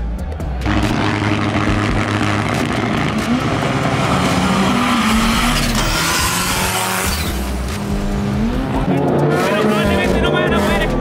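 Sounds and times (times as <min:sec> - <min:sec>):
drag racing engines accelerating: 0:00.6 - 0:11.0.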